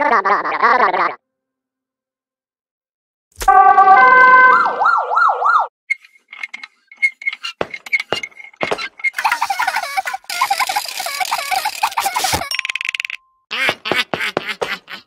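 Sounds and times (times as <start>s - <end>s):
cartoon siren wailing: 3.5s - 5.7s.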